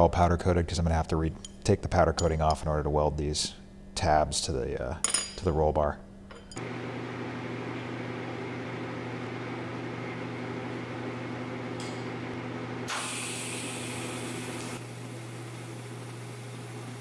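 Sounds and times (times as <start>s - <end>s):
welding machine humming: 6.6s - 17.0s
welding hiss: 12.9s - 15.6s.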